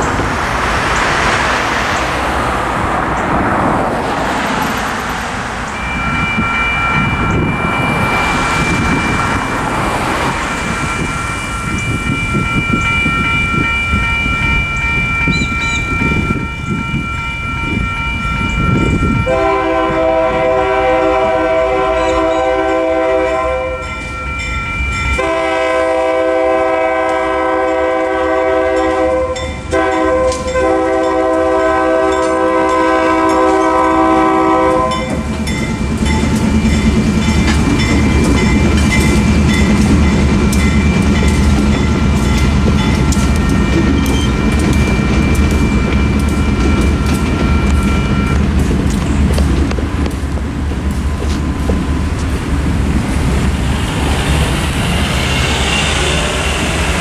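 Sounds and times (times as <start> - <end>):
diesel locomotives rumbling: 0.0 - 57.0
crossing bell ringing: 4.1 - 52.2, 53.6 - 57.0
train horn blasts: 19.2 - 24.1, 25.2 - 35.2
train wheels clicking over rails: 32.1 - 57.0.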